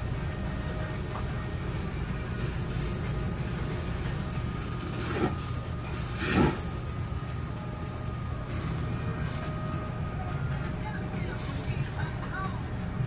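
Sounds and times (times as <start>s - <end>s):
ventilation rumble: 0.0s - 13.0s.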